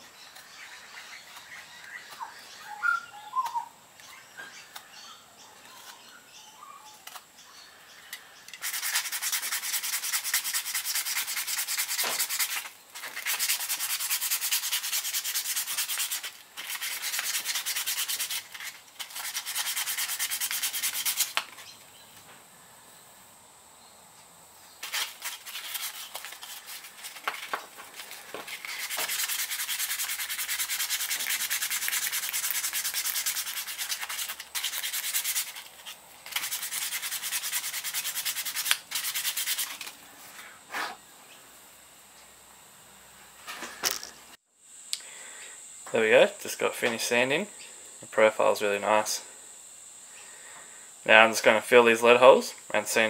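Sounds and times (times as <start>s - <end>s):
sandpaper rubbing on wood: 8.6s - 21.4s, 24.8s - 39.9s.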